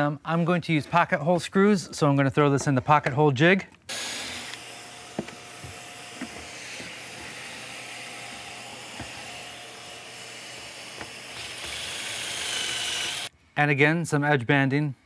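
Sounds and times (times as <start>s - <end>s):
drill boring: 3.9s - 13.3s
shop vacuum hissing: 3.9s - 13.3s.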